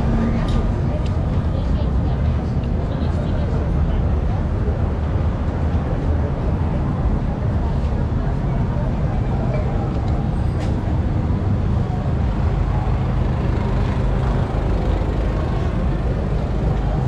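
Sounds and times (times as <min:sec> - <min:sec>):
crowd voices: 0:00.0 - 0:17.0
traffic rumble: 0:00.0 - 0:17.0.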